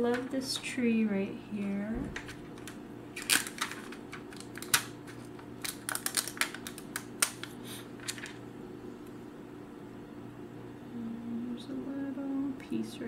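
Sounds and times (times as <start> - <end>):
cardstock pieces clicking and rustling: 2.2 - 8.4.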